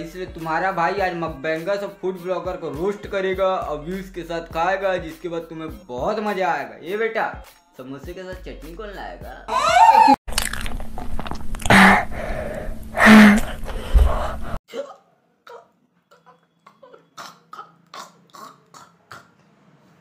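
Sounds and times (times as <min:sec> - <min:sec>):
person burping: 0:17.0 - 0:19.4.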